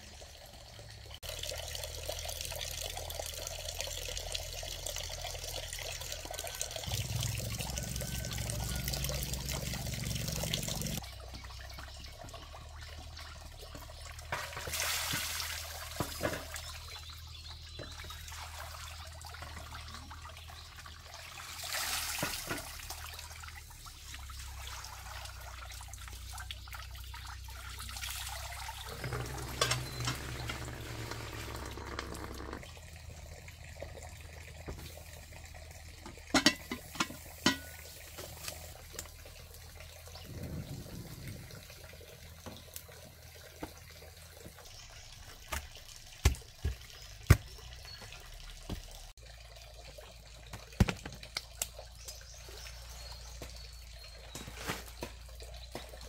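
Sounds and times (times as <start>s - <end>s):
running and splashing water: 0.0s - 56.0s
metal pot clinking on trivet: 36.3s - 37.8s.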